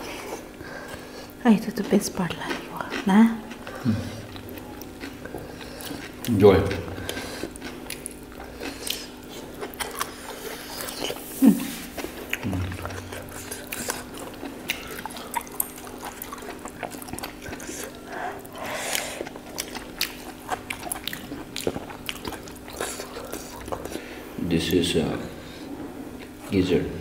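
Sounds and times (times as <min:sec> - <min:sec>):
steady low hum: 0:00.0 - 0:27.0
wet chewing and lip smacks: 0:01.8 - 0:11.2, 0:11.8 - 0:24.0.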